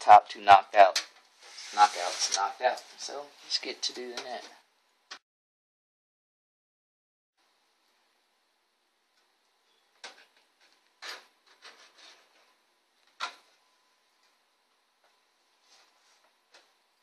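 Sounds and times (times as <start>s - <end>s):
metal scraping: 1.4s - 2.6s.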